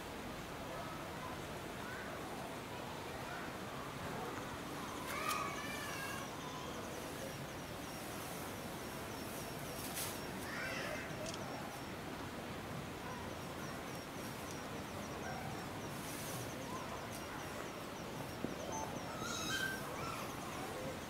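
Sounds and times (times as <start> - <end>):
background murmur: 0.0 - 21.0
brief pitched calls: 13.1 - 21.0.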